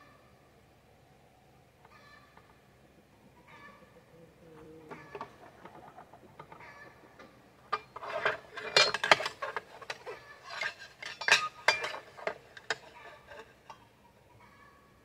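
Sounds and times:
metal clinks and knocks: 7.7 - 13.8.

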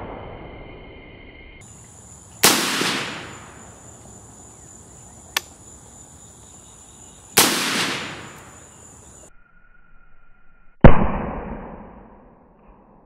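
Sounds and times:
high-pitched insect buzz: 0.6 - 2.4, 3.4 - 7.4, 8.2 - 10.8
rifle shots with echo: 2.4 - 3.8, 7.4 - 8.7
faint sharp click: 5.3 - 5.6.

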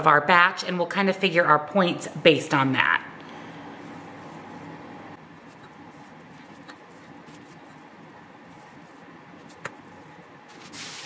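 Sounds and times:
dough handling noises: 3.6 - 11.0.

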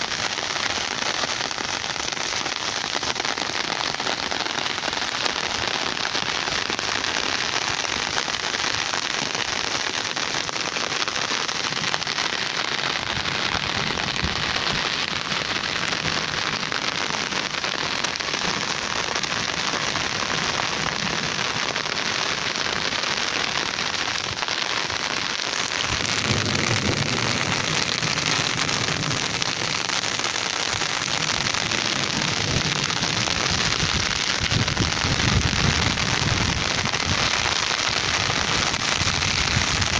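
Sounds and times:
rain falling: 0.0 - 39.9.

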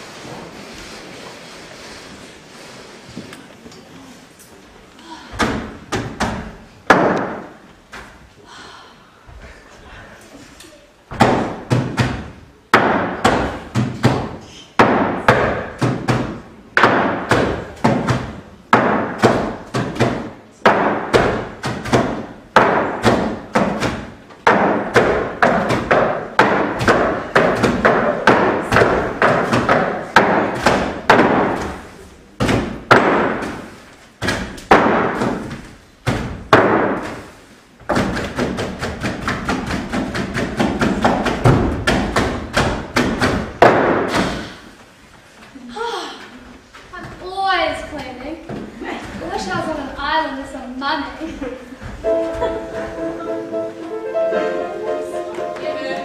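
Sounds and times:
rhythmic percussion in a hall: 11.1 - 44.8, 52.0 - 56.0.

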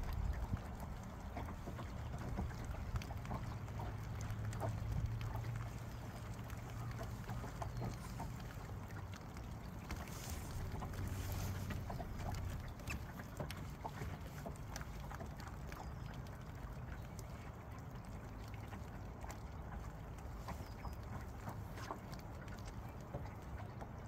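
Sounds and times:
wind rumble on microphone: 0.0 - 8.8
water lapping against boat hull: 0.0 - 24.0.

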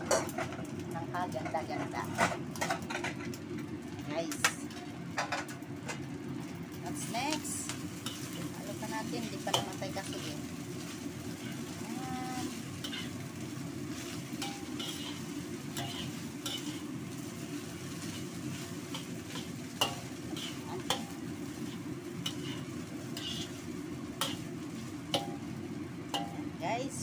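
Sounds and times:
rush of frying: 0.0 - 27.0
metal spatula scraping a wok: 8.0 - 8.6, 9.2 - 25.5.

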